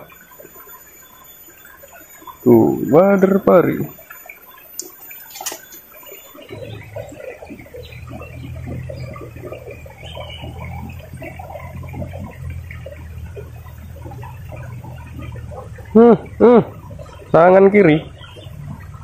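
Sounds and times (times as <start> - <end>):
stream gurgling over stones: 0.0 - 19.0
steady low rumble: 6.4 - 19.0.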